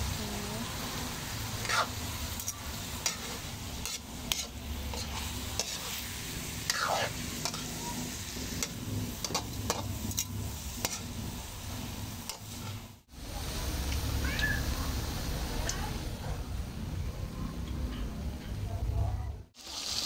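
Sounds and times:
oil sizzling: 0.0 - 17.0, 19.6 - 20.0
spatula scraping a metal wok: 1.3 - 12.9.

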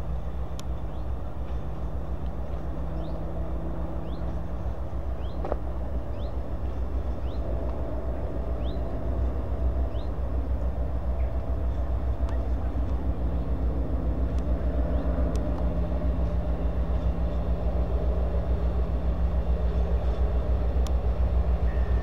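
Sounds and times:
locomotive engine rumbling: 0.0 - 22.0
bird chirping: 4.0 - 5.5, 6.1 - 7.5, 8.6 - 9.0, 9.9 - 10.2.

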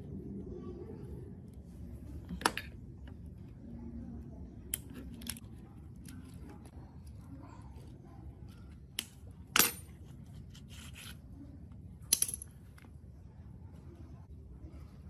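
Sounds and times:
metal parts clinking on concrete: 9.0 - 10.1, 12.1 - 12.9.

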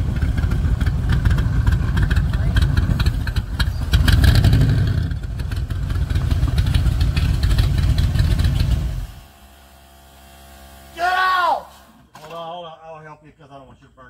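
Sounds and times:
car engine running at low speed: 0.0 - 11.0.

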